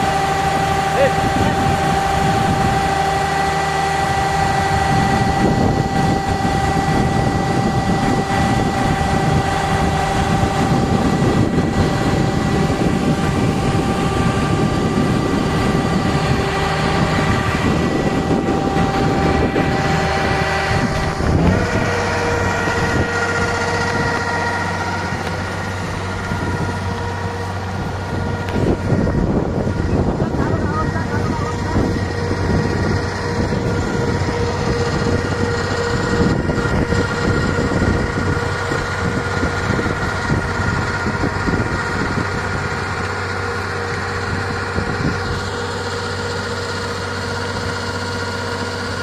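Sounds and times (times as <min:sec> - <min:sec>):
auger discharging grain: 0:00.0 - 0:49.0
farm machine engines running: 0:00.0 - 0:49.0.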